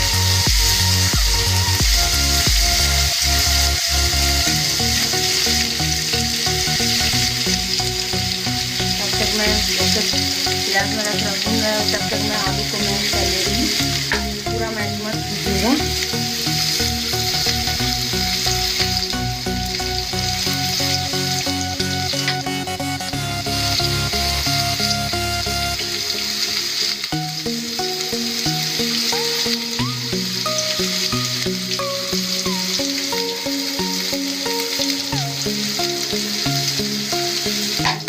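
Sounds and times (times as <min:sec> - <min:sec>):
food sizzling in hot oil: 0:00.0 - 0:38.0.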